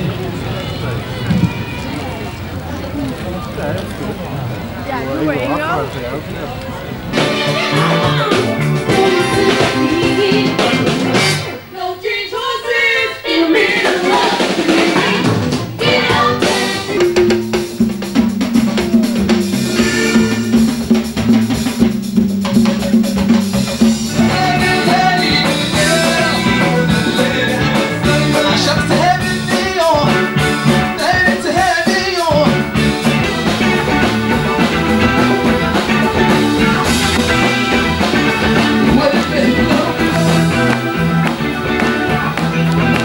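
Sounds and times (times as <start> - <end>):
upbeat live band music: 7.0 - 11.7, 12.9 - 43.0
melody sliding in pitch: 18.5 - 21.2.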